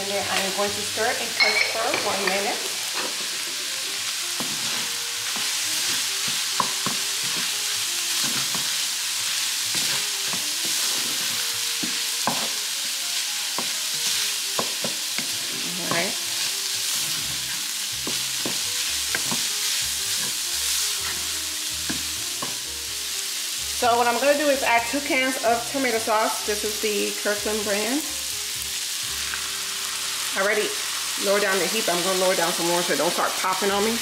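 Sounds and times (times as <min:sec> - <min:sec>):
sausage sizzling in a pan: 0:00.0 - 0:34.0
wooden spoon scraping pan: 0:09.7 - 0:12.5, 0:13.6 - 0:21.4.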